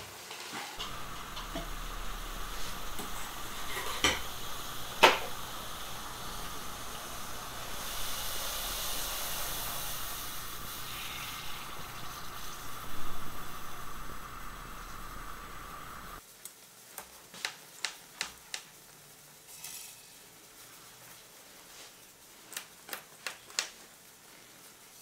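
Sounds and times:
liquid nitrogen hissing: 0.2s - 19.3s.

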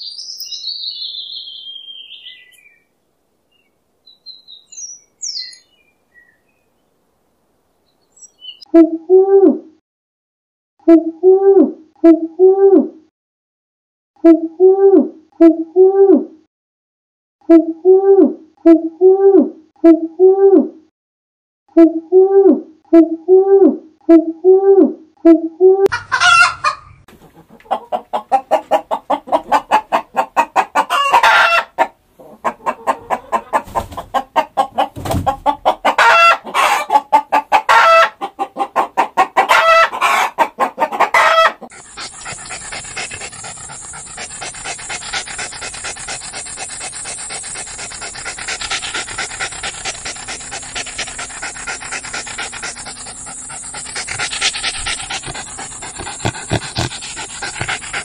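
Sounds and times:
pigeon cooing: 25.6s - 58.0s
rooster clucking: 25.8s - 58.0s
dog panting: 27.2s - 31.8s, 40.1s - 58.0s
rooster crowing: 30.9s - 31.8s, 36.0s - 37.0s, 37.7s - 38.2s, 39.5s - 40.4s, 41.1s - 41.6s.

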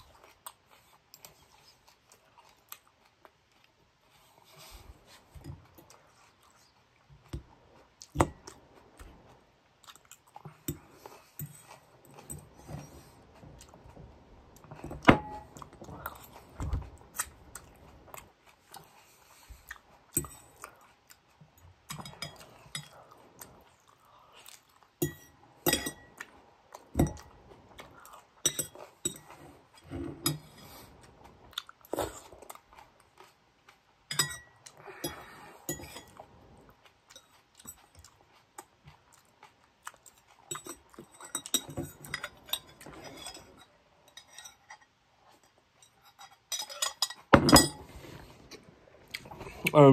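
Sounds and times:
person chewing crunchy salad: 7.8s - 14.8s, 30.6s - 43.7s
utensil clinking on dish: 25.0s - 26.2s, 34.1s - 36.2s, 45.8s - 47.9s.

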